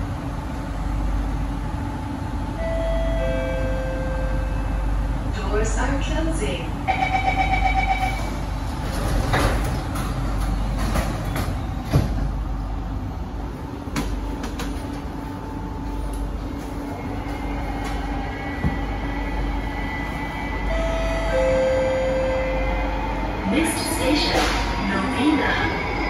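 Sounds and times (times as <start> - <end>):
metro car running hum: 0.0 - 26.0.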